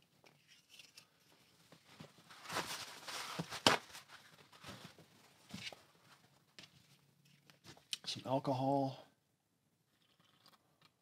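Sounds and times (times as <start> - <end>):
objects rustling and clattering: 0.0 - 7.9.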